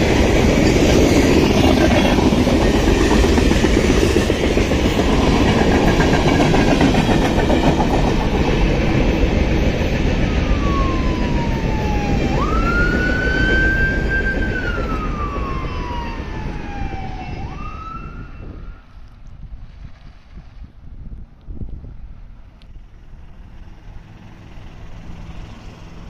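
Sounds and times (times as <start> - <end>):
freight train rumble: 0.0 - 19.0, 21.0 - 26.0
police siren wailing: 10.2 - 18.9.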